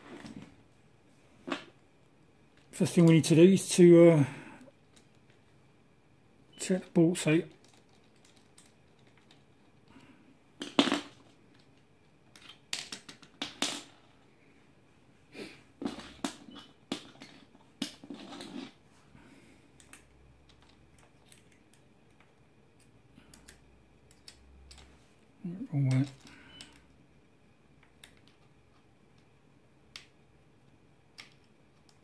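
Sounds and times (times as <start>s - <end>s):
clicks and knocks of parts handled: 7.5s - 10.0s, 10.6s - 13.9s, 19.7s - 25.0s, 27.8s - 29.3s, 31.1s - 32.0s.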